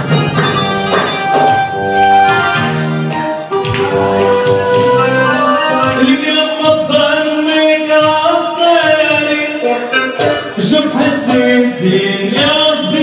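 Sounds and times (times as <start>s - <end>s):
music: 0.0s - 13.0s
man singing live: 5.7s - 13.0s.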